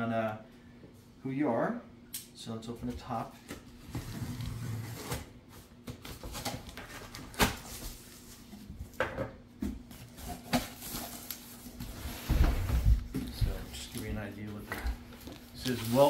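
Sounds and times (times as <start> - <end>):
cardboard being handled: 10.0 - 16.0.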